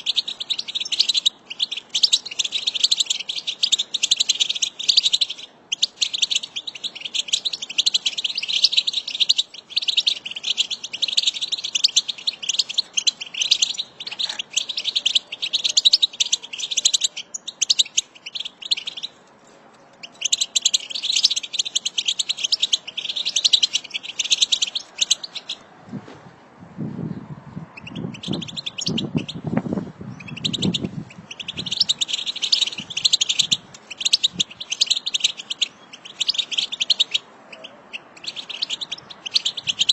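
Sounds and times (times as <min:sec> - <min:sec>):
goldfinches twittering: 0:20.0 - 0:25.6, 0:30.2 - 0:39.9.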